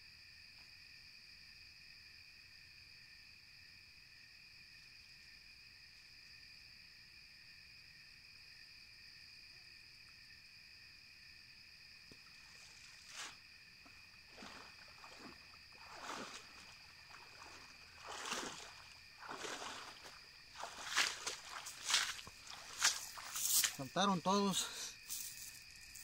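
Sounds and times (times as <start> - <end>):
night insects trilling: 0.0 - 26.0
water splashes and swishes: 12.2 - 23.9.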